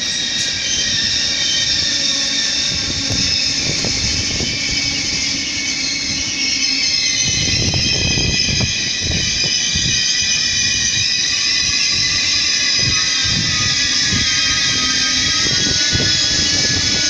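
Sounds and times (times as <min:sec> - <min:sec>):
train high whine: 0:00.0 - 0:17.0.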